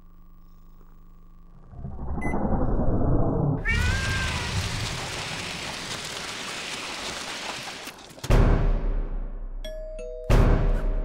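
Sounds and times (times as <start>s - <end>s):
cat caterwauling: 3.6s - 4.9s.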